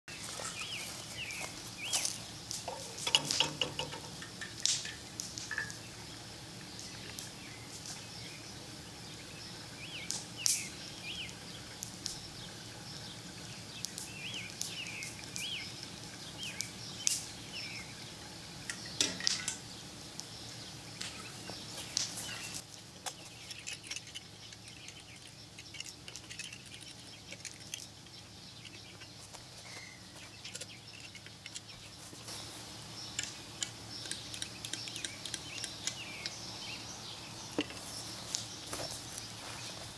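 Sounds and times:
small birds chirping: 0.0 - 39.9
sharp clicks and knocks: 2.0 - 5.8, 18.6 - 19.6, 23.0 - 32.0, 33.1 - 36.4.

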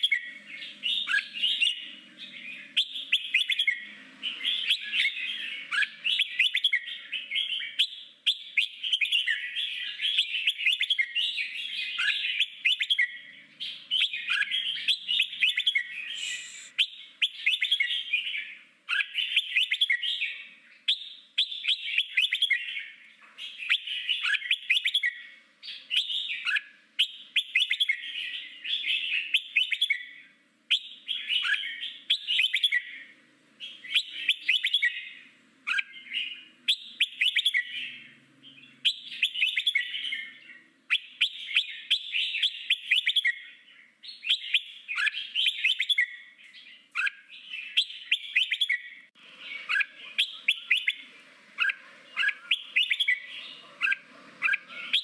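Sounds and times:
bulbul singing warbled phrases: 11.8 - 18.1, 47.0 - 55.0.

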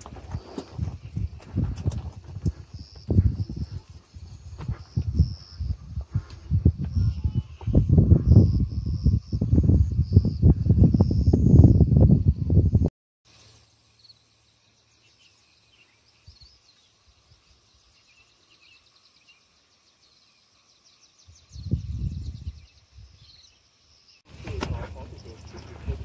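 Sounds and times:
high-pitched insect drone: 6.7 - 11.9.

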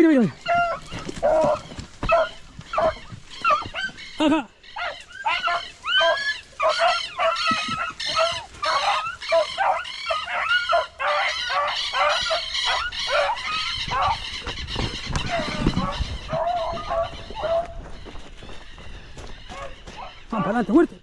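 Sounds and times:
pack of beagles baying: 0.0 - 21.0.

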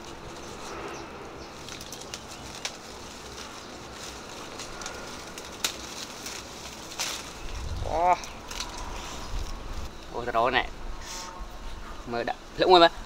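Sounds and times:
leaves rustling: 0.0 - 13.0
fruit stems snapping: 1.6 - 10.1.

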